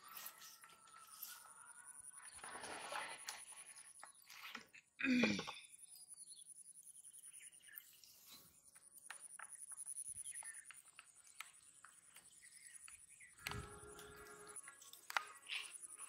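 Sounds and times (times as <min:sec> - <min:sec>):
faint bird chirps: 0:00.0 - 0:16.0
small clicks: 0:08.7 - 0:16.0.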